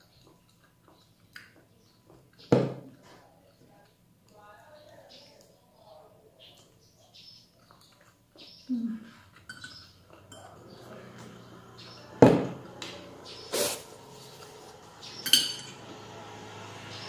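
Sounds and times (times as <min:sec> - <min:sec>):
metallic ring: 0:15.2 - 0:15.8.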